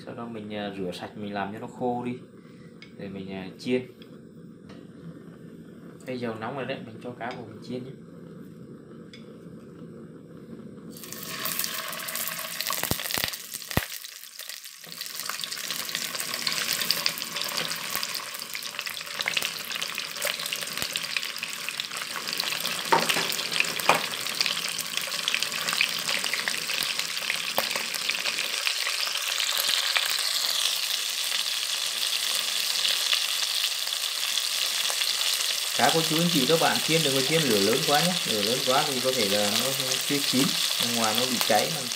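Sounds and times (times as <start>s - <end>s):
fish sizzling in hot oil: 10.9s - 41.9s
oil crackling and popping: 10.9s - 41.9s.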